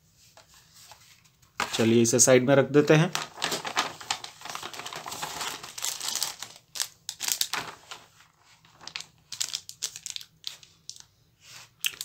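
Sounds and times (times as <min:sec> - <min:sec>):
plastic packaging crinkling: 0:03.1 - 0:11.1.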